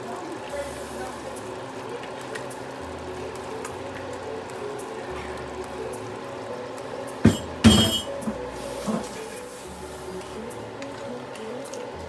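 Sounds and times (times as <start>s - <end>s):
metal cookware clattering: 7.2s - 8.4s
sharp metallic knock: 7.3s - 8.1s.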